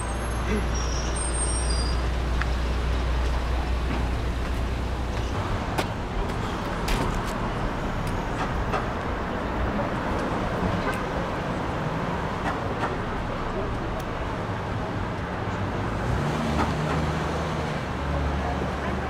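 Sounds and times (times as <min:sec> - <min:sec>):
road vehicles passing: 0:00.0 - 0:19.0.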